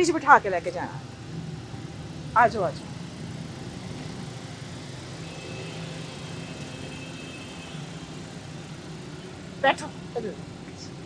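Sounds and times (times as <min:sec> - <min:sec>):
engine idling: 0:00.0 - 0:11.0
faint high whine: 0:05.2 - 0:11.0.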